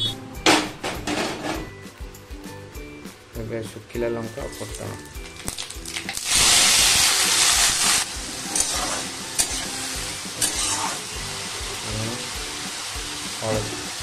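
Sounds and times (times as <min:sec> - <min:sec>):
vegetables sizzling in hot oil: 0:04.6 - 0:14.0.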